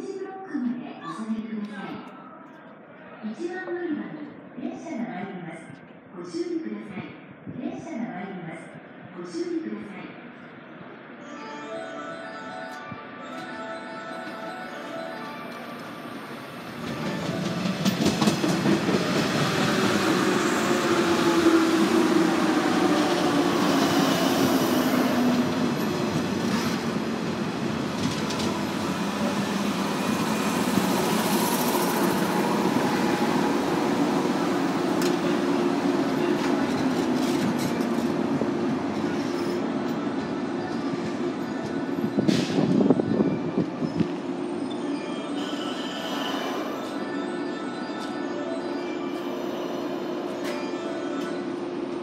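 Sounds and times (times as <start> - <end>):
train brakes whining: 45.2 - 47.0.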